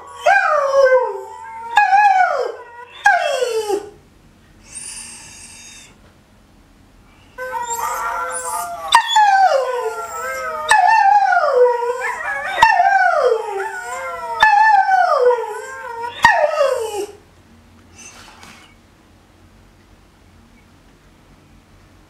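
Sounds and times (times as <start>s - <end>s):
dog howling: 0.0s - 4.0s, 7.4s - 17.2s.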